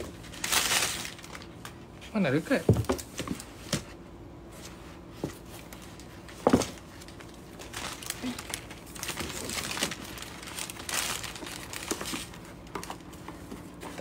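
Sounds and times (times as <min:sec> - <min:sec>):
packaging rustling and crinkling: 0:00.0 - 0:01.9, 0:05.4 - 0:14.0.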